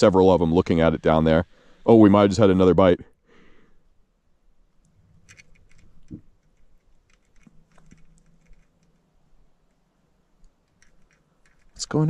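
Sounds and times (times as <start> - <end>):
faint low hum: 0.0 - 12.0
small clicks and ticks: 4.7 - 12.0.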